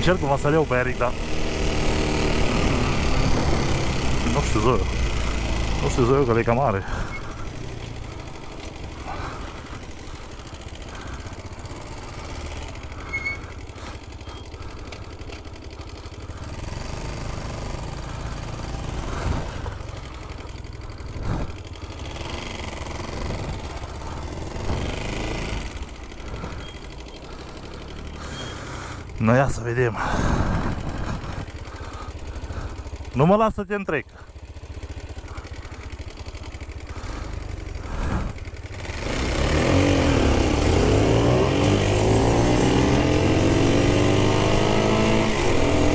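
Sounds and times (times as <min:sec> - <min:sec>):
small atv engines running: 0:00.0 - 0:45.9.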